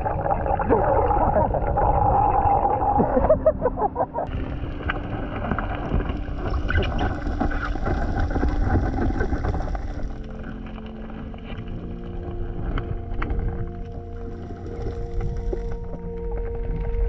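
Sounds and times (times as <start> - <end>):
muffled underwater rush: 0.0 - 17.0
underwater clicks and crackles: 4.2 - 17.0.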